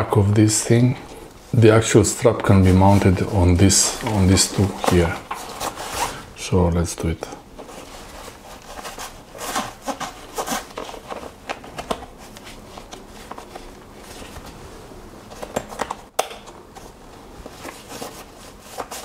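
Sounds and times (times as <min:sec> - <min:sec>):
fabric rustling: 0:00.9 - 0:06.4, 0:07.6 - 0:11.3.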